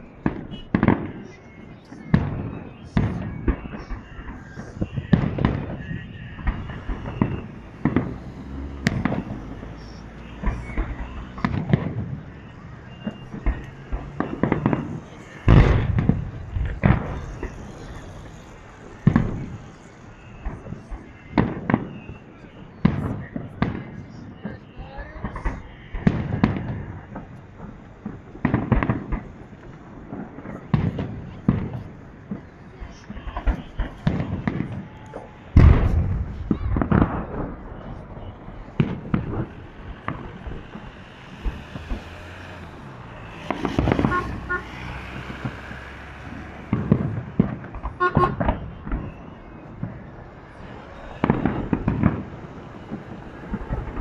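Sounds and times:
fireworks bursting with sharp bangs: 0.0s - 54.0s
firework shells bursting: 33.3s - 54.0s.

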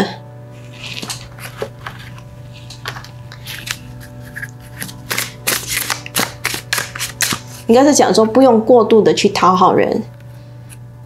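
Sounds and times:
soft background music: 0.0s - 11.0s
cards clicking and snapping: 0.8s - 7.7s.

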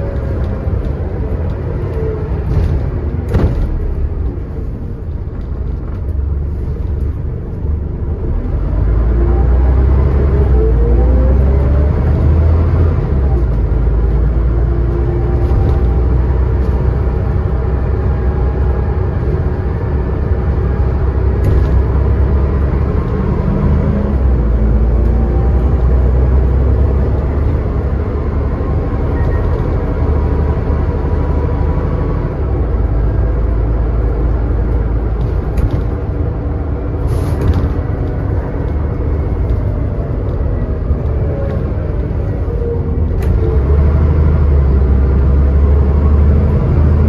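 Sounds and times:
bus diesel engine rumble: 0.0s - 47.0s
knocks from bus bodywork: 2.4s - 4.3s, 37.1s - 38.3s.

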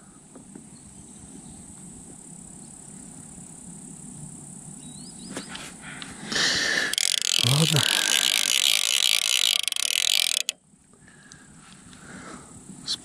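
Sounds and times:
warbling bird call: 6.5s - 10.5s
high-pitched insect chirring: 6.6s - 10.6s.

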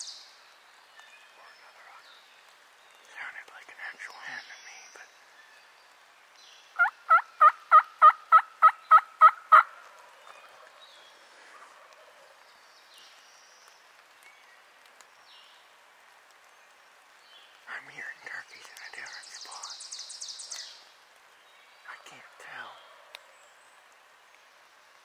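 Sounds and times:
turkey yelping: 6.8s - 9.7s.

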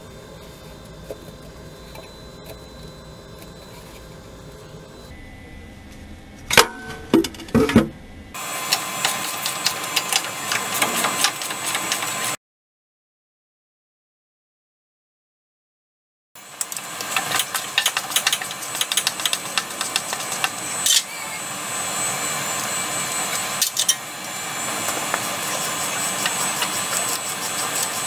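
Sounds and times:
rapid clicking: 16.6s - 20.7s.

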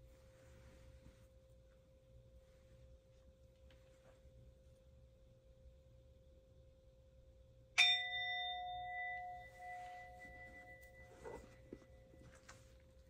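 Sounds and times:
bell ringing: 7.8s - 11.6s.

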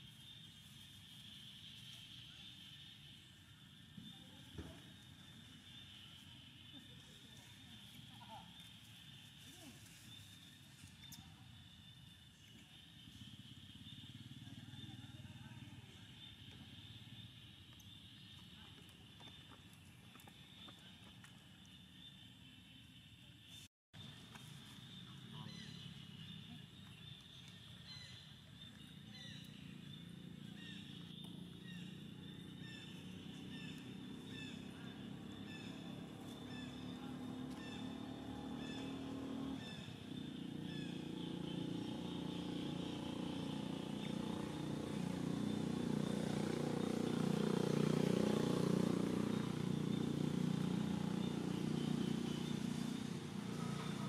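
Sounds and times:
motor vehicle engine: 24.0s - 54.0s.

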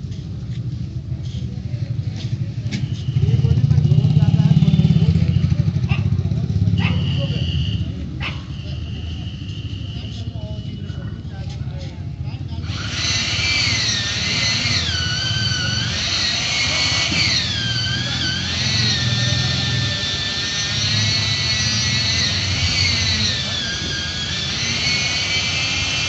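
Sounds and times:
power saw whining: 12.6s - 26.0s.

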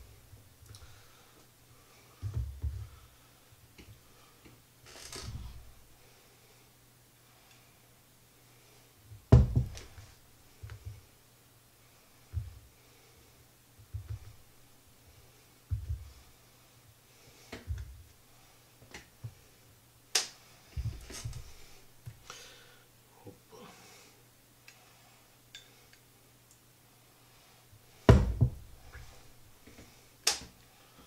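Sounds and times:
dull thump: 9.3s - 9.8s, 28.1s - 28.6s.

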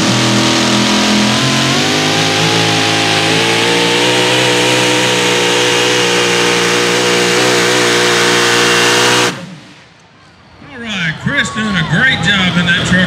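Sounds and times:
truck engine at full throttle: 0.0s - 10.0s.

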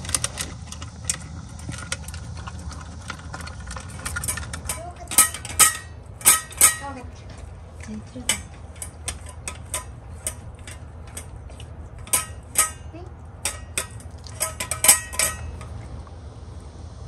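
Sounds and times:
dog eating from metal bowl: 0.0s - 16.2s.

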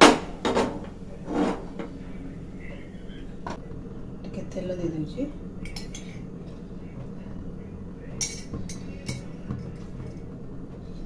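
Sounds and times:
steady low hum: 0.0s - 11.0s
kitchen utensils clinking: 5.6s - 6.6s, 8.2s - 10.3s.

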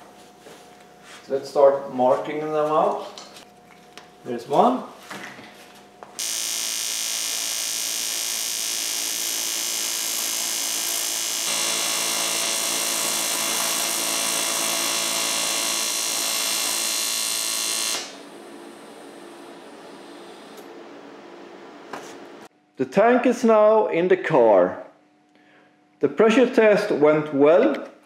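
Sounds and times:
welding arc buzzing: 6.2s - 20.6s.

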